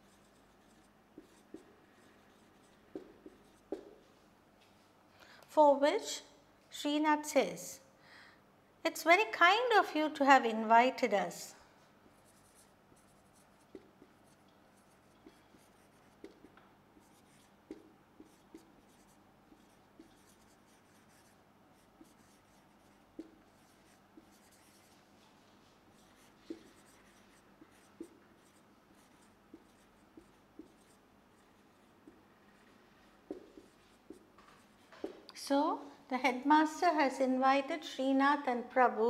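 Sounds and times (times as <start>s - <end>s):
marker squeaks and taps: 0.2s - 4.0s, 13.4s - 14.4s, 15.1s - 21.3s, 22.0s - 24.9s, 26.0s - 35.3s.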